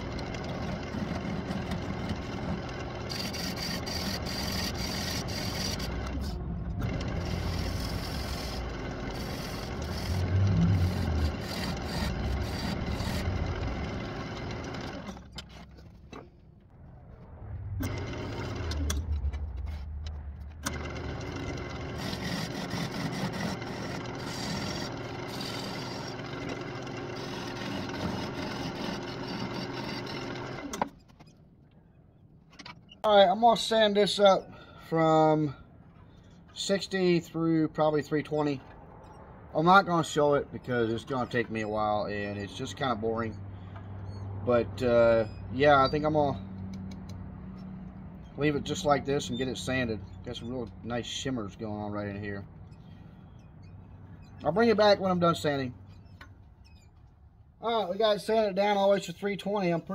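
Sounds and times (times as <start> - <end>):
wood lathe motor running: 0.0 - 15.3, 17.8 - 19.1, 20.6 - 30.9
gouge cutting wood: 1.5 - 14.9, 21.7 - 30.4.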